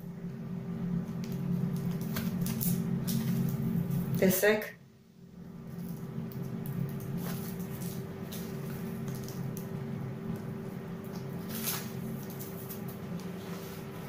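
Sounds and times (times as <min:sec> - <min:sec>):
low hum: 0:00.0 - 0:14.0
pastry crust and paper crackling: 0:01.1 - 0:04.2, 0:05.6 - 0:14.0.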